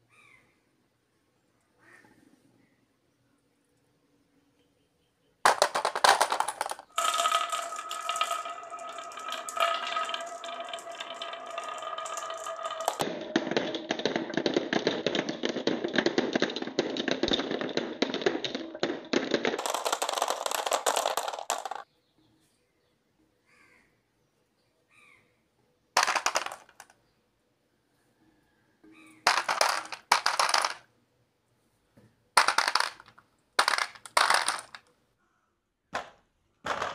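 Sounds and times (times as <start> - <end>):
glass marbles rattling down track: 5.5 - 21.8, 26.0 - 26.9, 29.2 - 30.9, 32.4 - 34.9
marbles clattering into plastic truck: 5.5 - 21.8, 26.0 - 27.0, 29.2 - 30.9, 32.4 - 34.9, 36.0 - 36.9.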